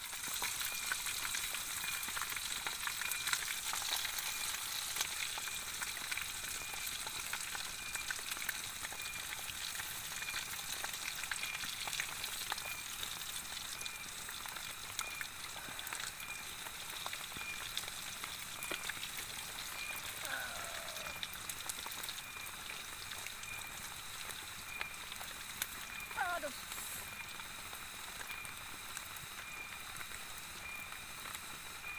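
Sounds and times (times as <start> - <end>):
chicken sizzling in hot oil: 0.0 - 31.9.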